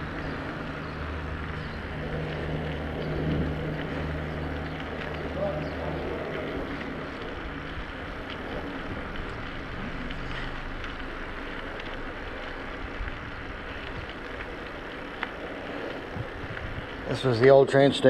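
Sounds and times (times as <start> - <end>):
tyres rolling over pavement: 0.0 - 18.0
wind noise on microphone: 16.0 - 17.1.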